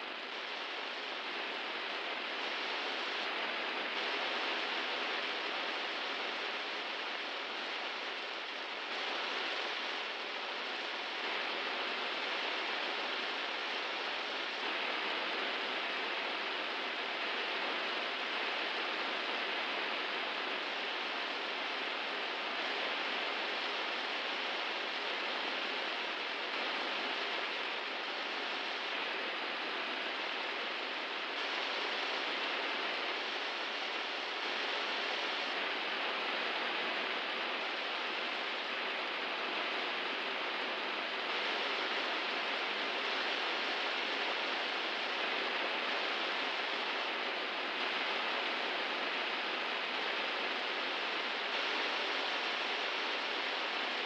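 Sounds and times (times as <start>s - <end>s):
steady hiss: 0.0s - 54.0s.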